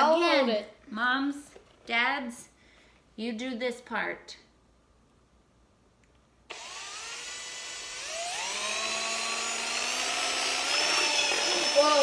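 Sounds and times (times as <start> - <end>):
cordless drill whining: 6.5 - 12.0.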